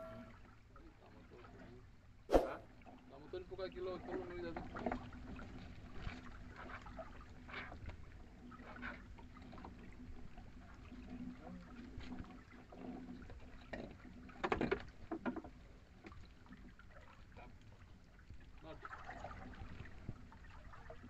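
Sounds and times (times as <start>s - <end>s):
faint steady hum: 0.0s - 2.8s
water around a boat: 0.0s - 21.0s
wind: 0.0s - 21.0s.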